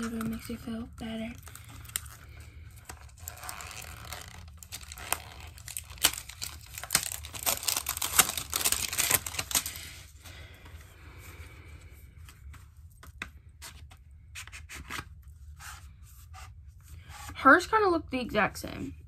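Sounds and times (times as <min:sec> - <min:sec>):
packaging crinkling: 0:01.2 - 0:10.2.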